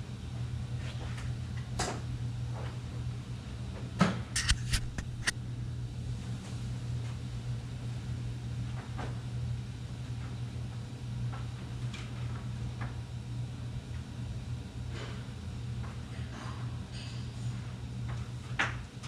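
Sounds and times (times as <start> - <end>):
steady low hum: 4.3 - 8.6.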